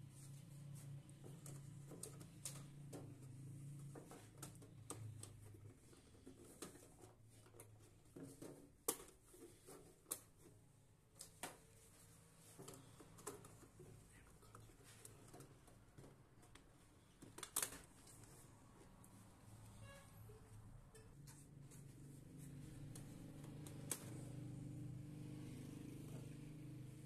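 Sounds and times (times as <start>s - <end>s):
plastic strips clicking into ducts: 1.4s - 3.1s, 16.4s - 18.2s, 22.9s - 24.4s.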